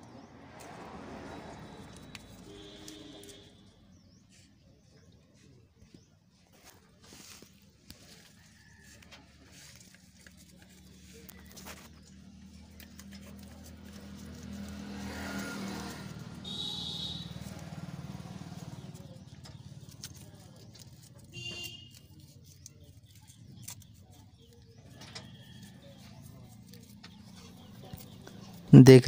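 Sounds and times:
motor vehicle passing: 0:00.0 - 0:04.5, 0:08.6 - 0:21.4, 0:22.1 - 0:29.0
low engine hum: 0:00.0 - 0:04.8.

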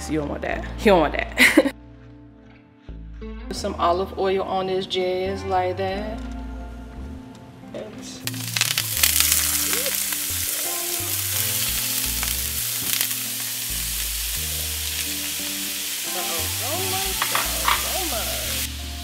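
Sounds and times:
food sizzling in a frying pan: 0:08.2 - 0:19.0.

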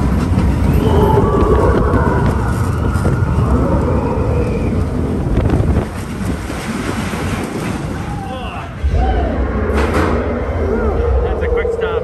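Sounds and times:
roller coaster rumbling on track: 0:00.0 - 0:12.0
wind buffeting microphone: 0:00.0 - 0:12.0.

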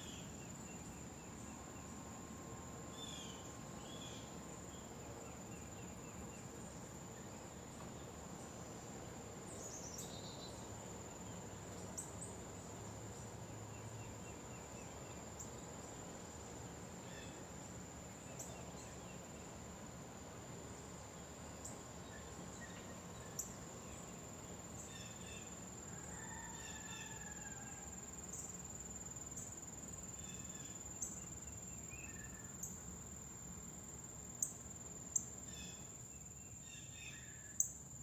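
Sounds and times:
insects droning: 0:00.0 - 0:38.0.

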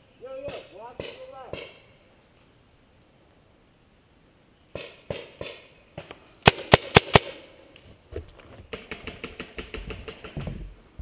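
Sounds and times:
paintball marker shots: 0:00.4 - 0:01.8, 0:04.7 - 0:07.4
footsteps on wooden deck: 0:09.8 - 0:11.0.

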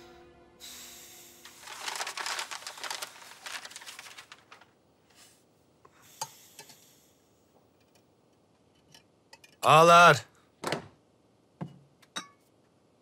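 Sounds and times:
paper rustling and crinkling: 0:01.4 - 0:05.4.

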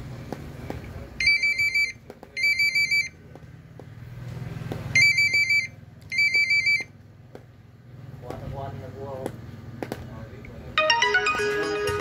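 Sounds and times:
phone ringtone warble: 0:05.0 - 0:06.9, 0:10.8 - 0:12.0.

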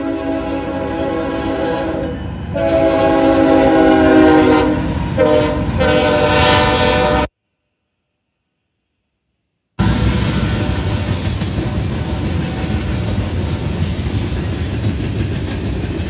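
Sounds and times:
train rumbling on rails: 0:00.0 - 0:07.2, 0:09.8 - 0:16.0
locomotive air horn blasts: 0:00.0 - 0:07.3, 0:09.8 - 0:13.4.

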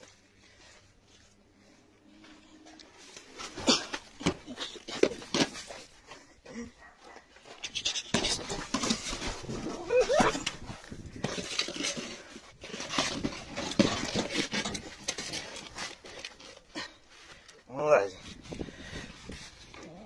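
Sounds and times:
dog whining: 0:09.7 - 0:10.5.

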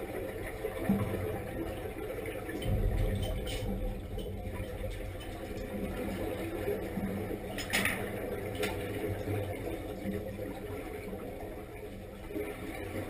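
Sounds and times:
low underwater rumble: 0:00.0 - 0:13.0
underwater bubbling: 0:00.0 - 0:13.0.

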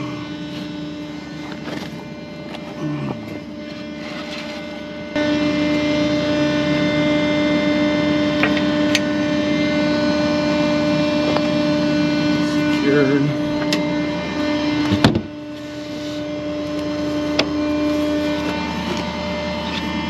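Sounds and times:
hydraulic winch humming: 0:10.5 - 0:20.0.

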